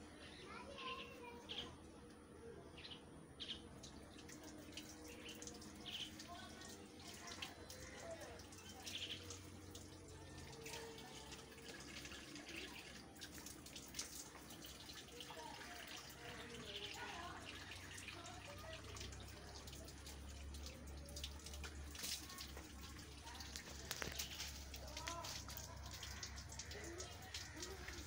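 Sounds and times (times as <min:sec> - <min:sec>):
drips on concrete: 0:00.2 - 0:28.0
water running from a tap: 0:03.7 - 0:28.0
hands washing under water: 0:19.2 - 0:28.0.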